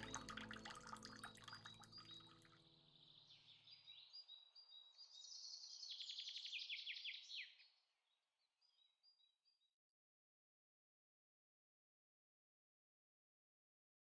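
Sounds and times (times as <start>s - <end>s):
quiet background music: 0.0s - 3.8s
songbird singing: 0.0s - 7.7s.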